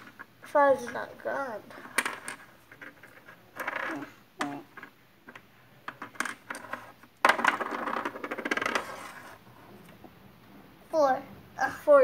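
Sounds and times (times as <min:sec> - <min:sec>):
die clattering on wooden floor: 0:01.9 - 0:09.1.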